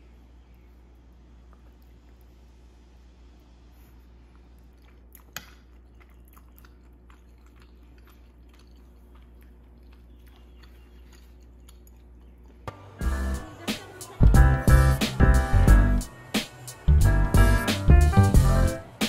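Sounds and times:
chewing rice cakes: 0.0s - 12.7s
music: 12.7s - 19.0s
low hum: 14.2s - 19.0s.

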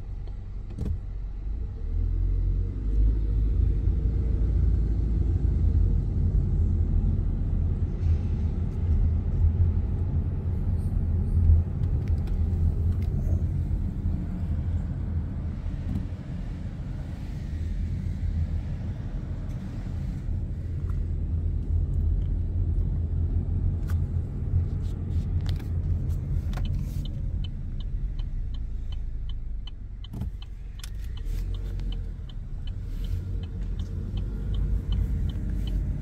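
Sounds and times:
car cabin road and engine rumble: 0.0s - 36.0s
turn signal ticking: 19.4s - 36.0s.

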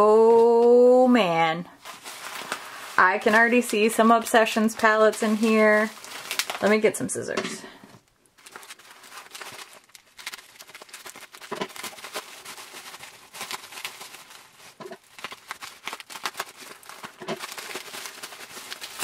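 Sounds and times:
plastic wrap crinkling: 1.7s - 7.2s, 7.9s - 19.0s
scissors cutting bubble wrap: 4.9s - 6.7s, 8.5s - 19.0s.

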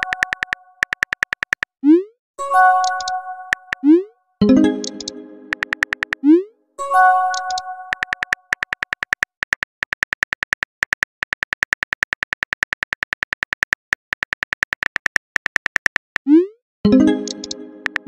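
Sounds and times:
phone keyboard key clicks: 0.0s - 1.7s, 4.8s - 6.2s, 7.3s - 16.2s.

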